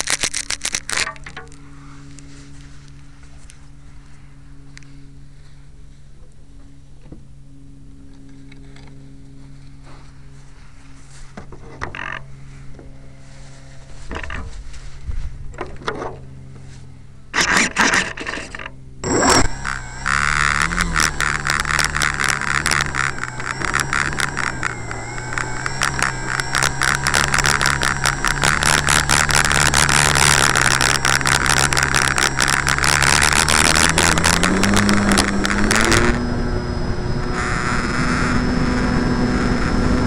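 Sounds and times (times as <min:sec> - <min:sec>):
electric model plane motor: 0:00.0 - 0:06.0, 0:17.3 - 0:40.0.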